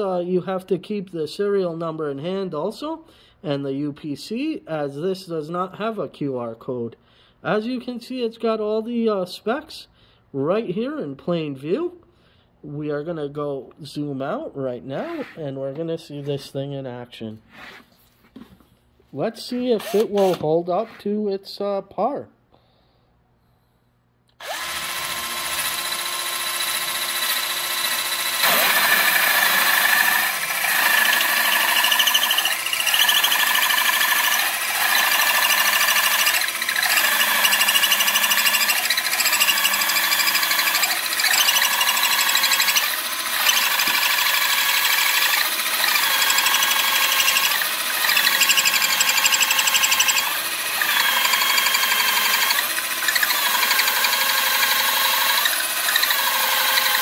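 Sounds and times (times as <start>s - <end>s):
drill motor whining: 24.4s - 57.0s
hole saw rasping through wood: 24.4s - 57.0s.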